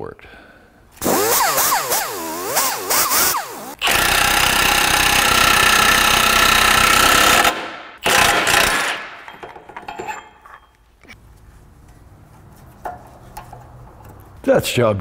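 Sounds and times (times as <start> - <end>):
pneumatic tool whine and rattle: 1.0 - 8.9.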